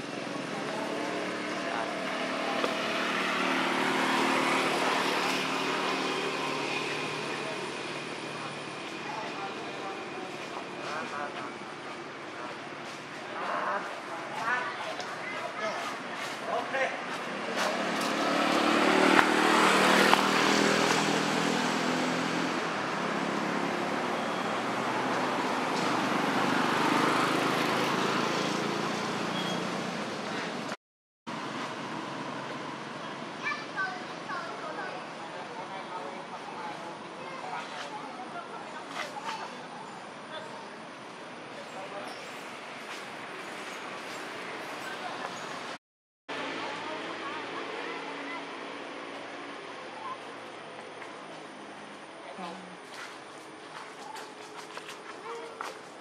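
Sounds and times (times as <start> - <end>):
motor engine passing: 0.2 - 9.7, 17.2 - 30.6.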